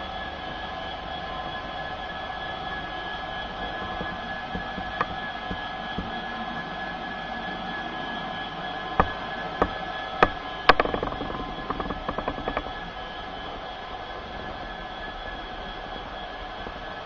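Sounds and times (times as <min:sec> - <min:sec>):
model diesel engine drone: 0:00.0 - 0:17.0
wheels clicking over rail joints: 0:02.6 - 0:06.2, 0:09.0 - 0:13.0.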